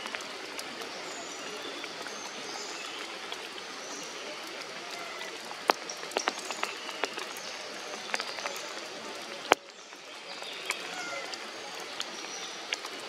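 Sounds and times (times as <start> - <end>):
steady forest hiss: 0.0 - 13.0
faint high calls: 10.8 - 11.4.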